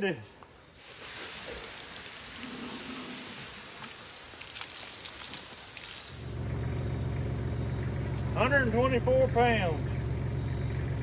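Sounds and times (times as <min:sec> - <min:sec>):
water hissing from hose nozzle: 0:00.8 - 0:06.4
tractor engine idling: 0:02.1 - 0:11.0.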